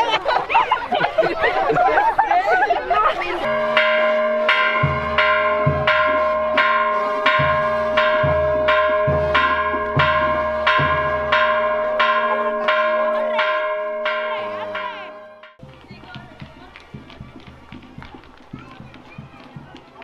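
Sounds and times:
church bells pealing: 2.9s - 15.6s
deeper bell: 3.4s - 15.6s.

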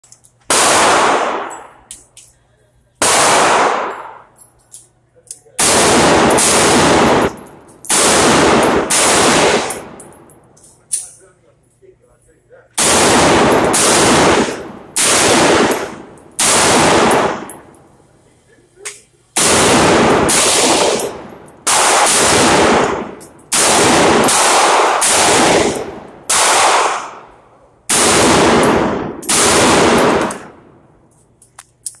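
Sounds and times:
loud gunshots echoing indoors: 0.5s - 1.8s, 3.0s - 4.3s, 5.6s - 10.0s, 12.8s - 17.7s, 19.4s - 30.8s.

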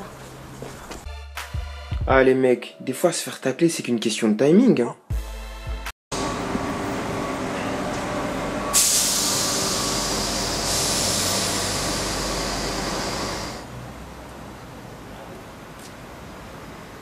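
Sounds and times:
station ambience: 6.1s - 17.0s
train air hiss: 8.7s - 13.7s.

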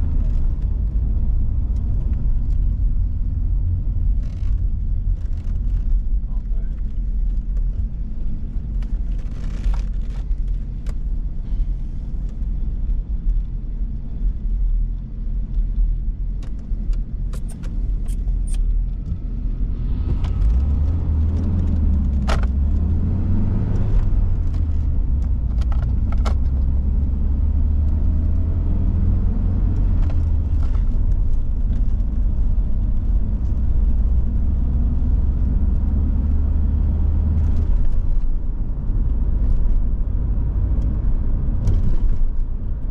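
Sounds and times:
car engine and road rumble: 0.0s - 42.9s
sharp clicks and rattles: 15.5s - 19.3s, 23.8s - 26.7s.

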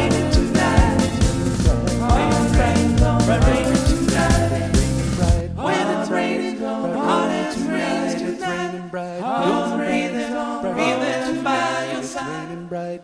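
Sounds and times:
acoustic guitar: 0.0s - 5.9s
man singing: 4.8s - 5.6s, 12.3s - 13.0s.

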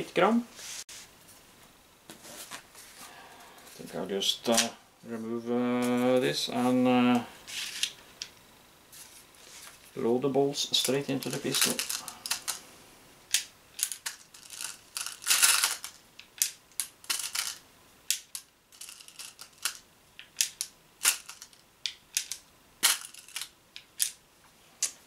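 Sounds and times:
rustling scrape: 0.5s - 1.4s, 2.1s - 4.0s, 7.4s - 8.0s, 8.9s - 10.0s.

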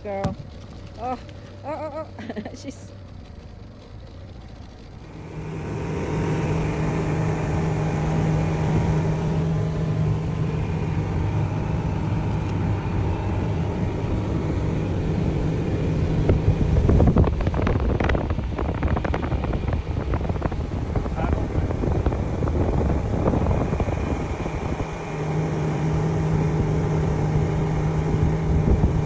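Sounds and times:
motorboat engine running: 0.0s - 29.0s
water and hull noise: 0.0s - 29.0s
wind buffeting microphone: 4.9s - 29.0s.

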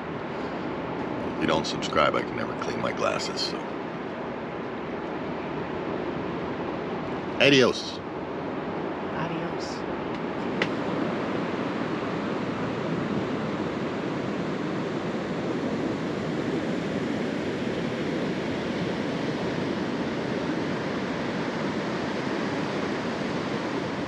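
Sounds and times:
ocean surf washing onto beach: 1.2s - 3.6s.

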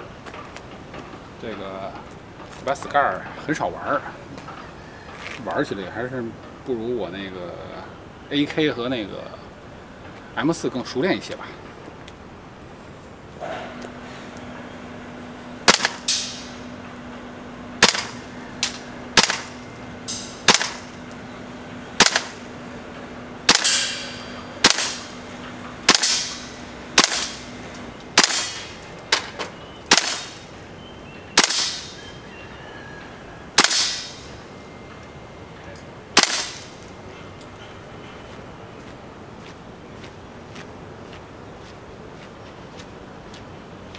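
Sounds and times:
airsoft rifle shots: 15.6s - 16.6s, 17.8s - 20.9s, 22.0s - 22.4s, 23.5s - 25.2s, 25.8s - 27.5s, 28.1s - 29.3s, 29.9s - 30.4s, 31.4s - 32.0s, 33.6s - 34.3s, 36.2s - 36.8s.

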